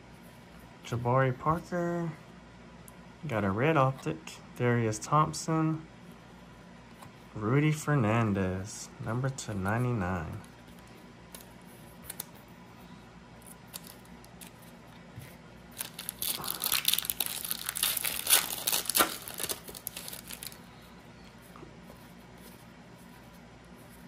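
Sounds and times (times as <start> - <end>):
foil wrapper tearing and crinkling: 13.7 - 14.6, 15.7 - 20.6.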